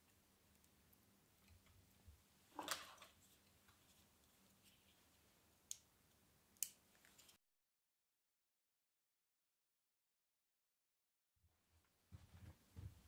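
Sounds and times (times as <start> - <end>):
wires rustling: 0.4 - 5.9, 6.6 - 7.4.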